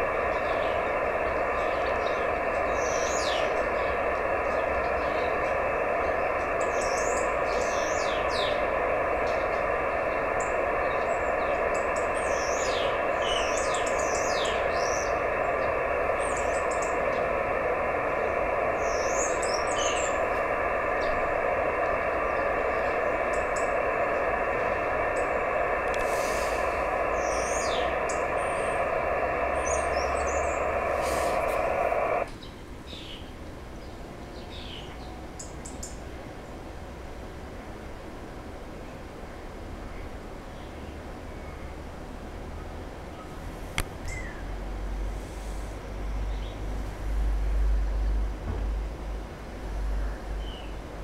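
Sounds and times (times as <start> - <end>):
radio receiver hiss: 0.0 - 32.3, 43.0 - 51.0
weak digital radio signal: 0.0 - 32.3
small birds chirping: 0.0 - 36.0.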